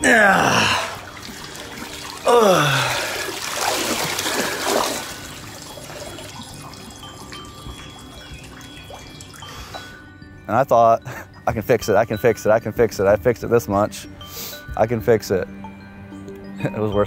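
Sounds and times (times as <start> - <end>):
water trickle: 0.0 - 13.2
water sloshing from wading: 0.7 - 10.0.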